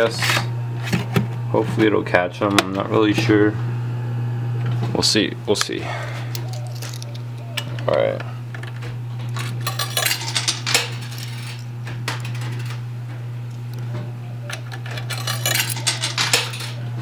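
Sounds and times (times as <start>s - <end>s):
steady low hum: 0.0s - 17.0s
coins clinking in a machine: 6.4s - 7.8s, 9.4s - 12.8s, 14.4s - 17.0s.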